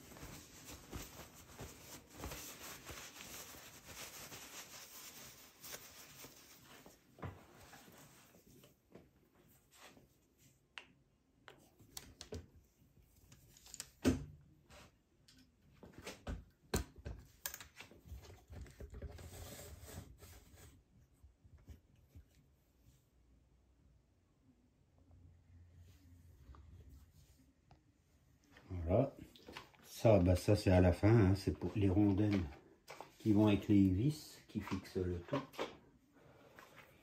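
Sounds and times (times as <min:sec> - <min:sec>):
rubbing and rustling: 0:00.0 - 0:10.6, 0:17.7 - 0:23.1.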